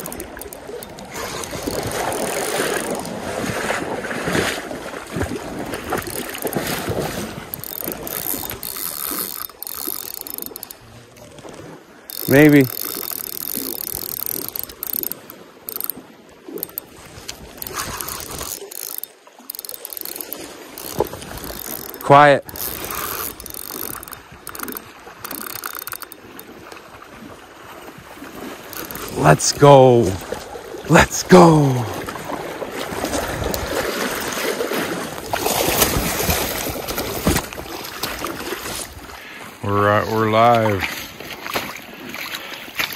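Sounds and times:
fishing reel whirring and clicking: 0.0 - 3.3, 5.6 - 10.8, 11.4 - 26.8, 28.5 - 29.6, 32.9 - 38.9
rushing river water: 0.0 - 42.9.

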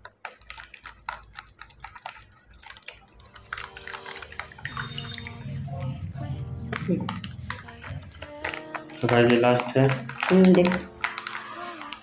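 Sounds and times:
liquid pouring into a cup: 0.0 - 12.0
background music: 3.1 - 12.0
plastic bottle cap clicking: 7.1 - 12.0.

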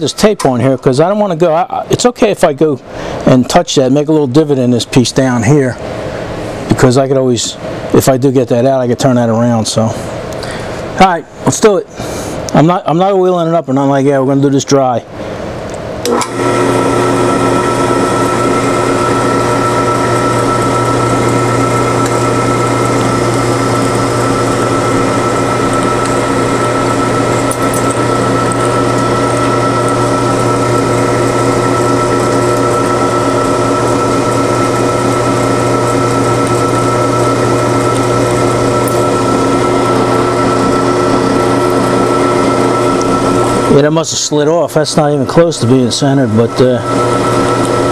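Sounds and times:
drill press motor humming: 16.0 - 47.9.

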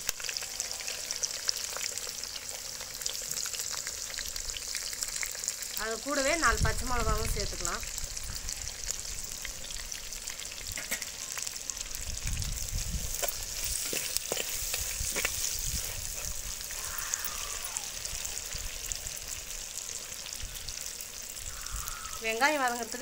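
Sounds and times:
onions sizzling in hot oil: 0.0 - 23.0
ladle stirring in pot: 12.8 - 17.2.

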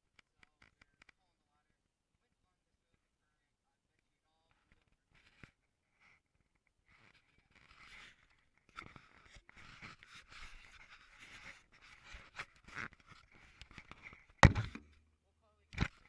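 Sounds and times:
scratchy rustling of handling: 6.8 - 14.9
camera set down knock: 14.4 - 15.0.

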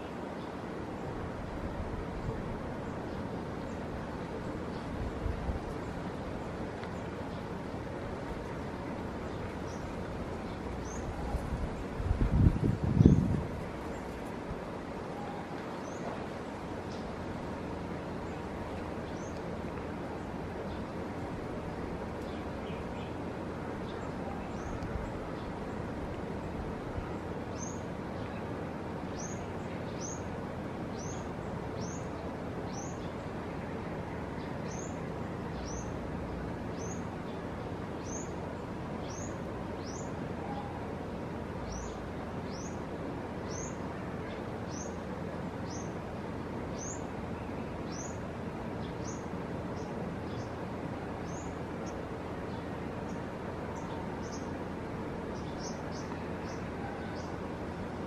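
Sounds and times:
wind noise: 11.0 - 14.8
bird chirping: 39.0 - 40.8.

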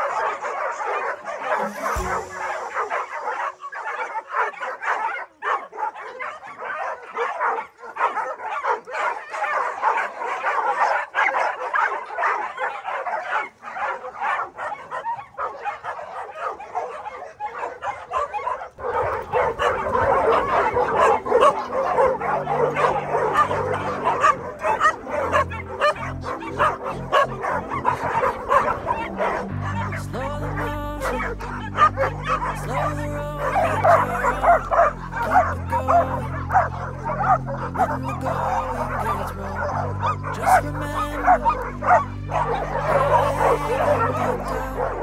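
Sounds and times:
dogs barking: 0.0 - 45.0
music with bass line: 1.5 - 3.5, 19.0 - 45.0.

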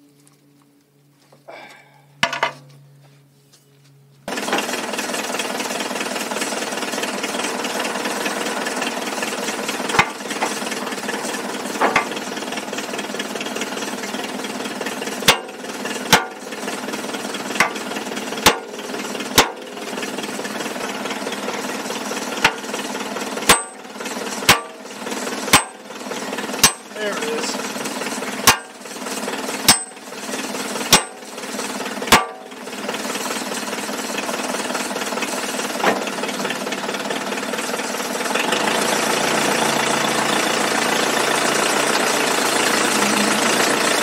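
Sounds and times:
diesel engine running: 0.2 - 44.0
sharp metal clanks: 15.2 - 16.4, 17.6 - 17.8, 18.4 - 18.8, 19.4 - 19.6, 23.4 - 23.8, 24.4 - 24.8, 25.5 - 25.8, 26.6 - 27.5, 28.4 - 28.8, 29.6 - 30.1, 30.8 - 31.3, 32.1 - 32.6.

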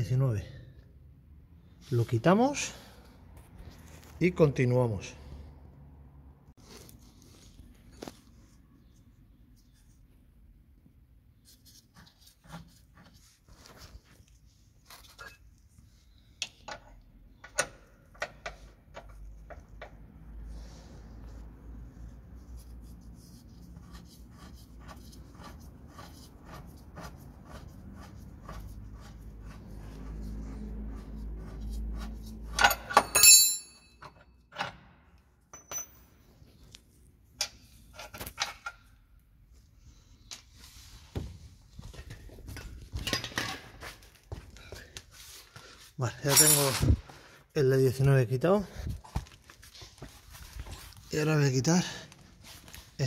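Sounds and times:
wrench clinking on metal bolt: 32.5 - 34.8, 35.5 - 36.1, 46.3 - 46.9.

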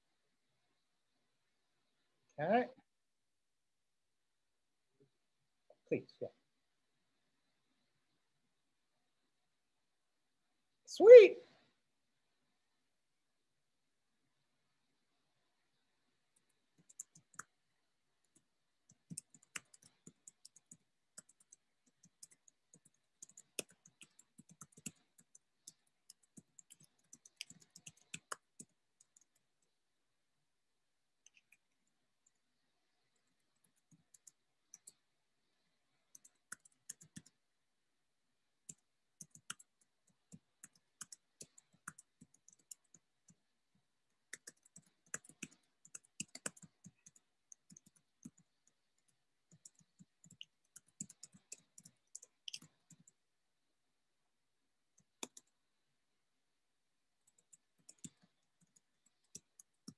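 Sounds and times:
faint keyboard typing: 15.7 - 29.8, 31.2 - 37.5, 38.6 - 53.2, 54.9 - 55.6, 57.2 - 59.9.

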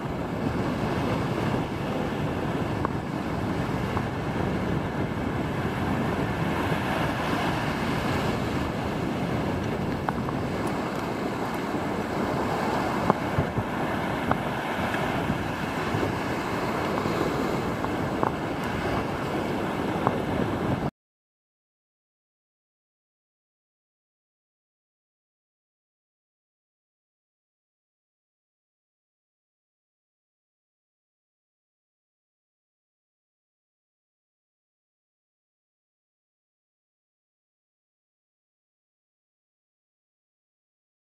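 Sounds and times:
surf breaking on a beach: 0.0 - 20.9
wind buffeting microphone: 0.0 - 20.9.

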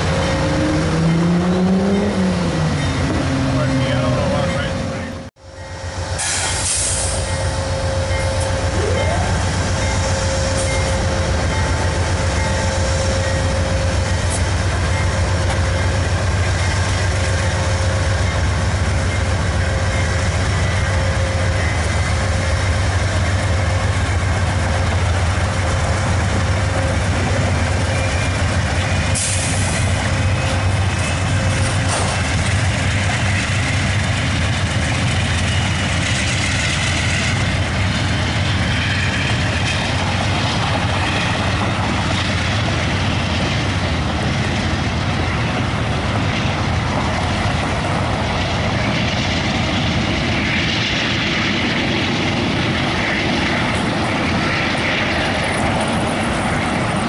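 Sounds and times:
locomotive engine rumble: 0.0 - 57.0
brief hisses: 6.2 - 7.2.

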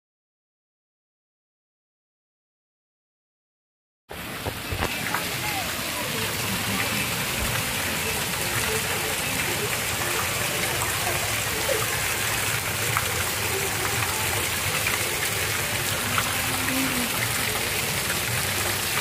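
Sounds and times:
fountain water splashing: 4.1 - 19.0.

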